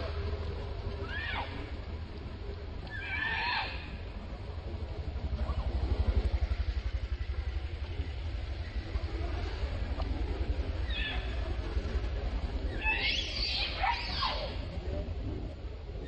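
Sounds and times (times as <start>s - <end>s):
steady low rumble: 0.0s - 16.0s
monkey screeching: 2.9s - 3.9s, 12.7s - 14.6s.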